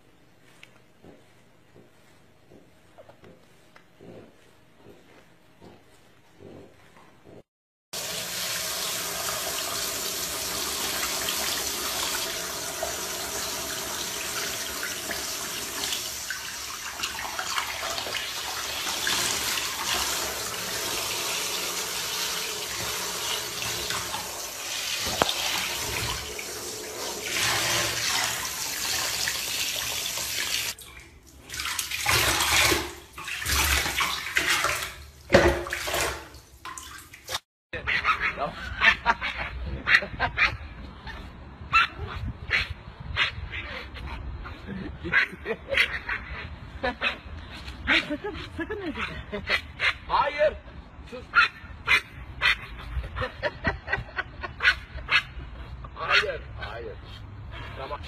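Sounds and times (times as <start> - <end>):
tap running into bathtub: 8.0 - 37.4.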